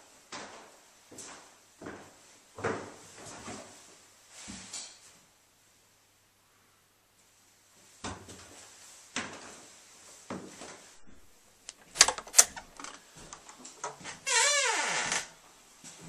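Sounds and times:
door latch clicking: 11.7 - 13.4
door rattling: 11.7 - 13.6
door hinges creaking: 11.7 - 15.3.

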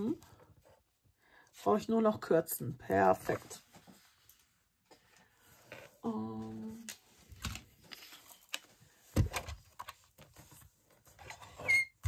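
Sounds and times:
paper rustling: 6.8 - 11.2.

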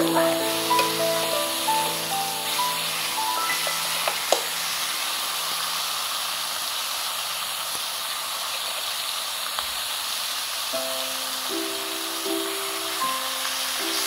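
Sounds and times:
meat sizzling on a grill: 0.0 - 14.0.

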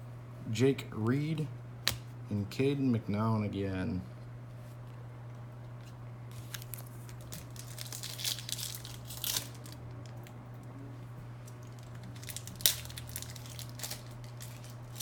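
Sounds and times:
wrapper crinkling and tearing: 6.3 - 10.3, 11.4 - 15.0.

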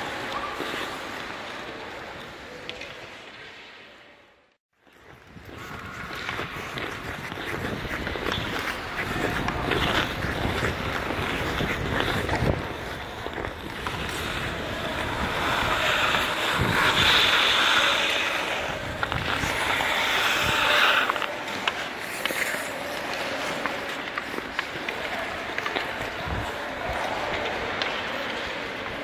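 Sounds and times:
ice skates scraping on ice: 0.0 - 4.0, 4.8 - 29.0.

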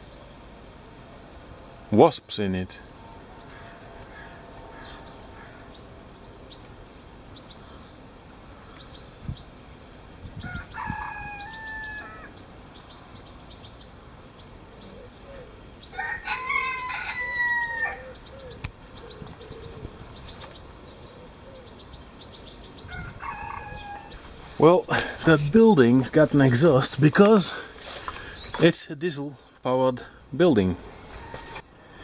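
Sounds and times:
small birds chirping: 0.0 - 32.0
rooster crowing: 3.0 - 5.7, 10.4 - 12.4, 15.9 - 18.2, 22.9 - 24.2, 31.1 - 31.6.

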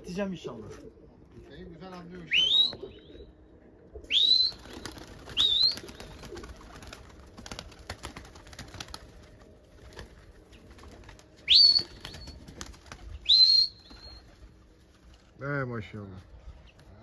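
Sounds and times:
sharp rising whistles: 2.3 - 3.3, 4.1 - 6.1, 11.4 - 12.4, 13.2 - 14.3.

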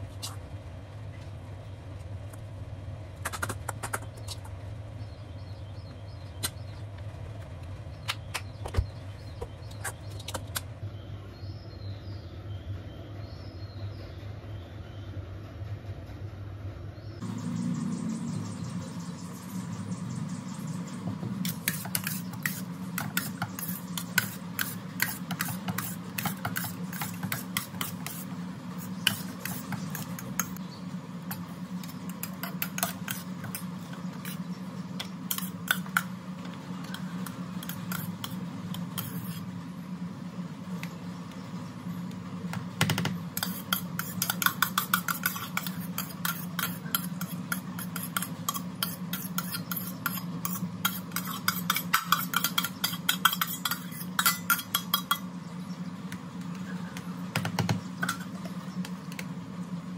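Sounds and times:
low hum: 0.0 - 59.9
spoon scraping metal bowl: 21.4 - 30.6, 31.3 - 34.5, 35.2 - 36.1, 36.8 - 39.5, 43.4 - 55.3.

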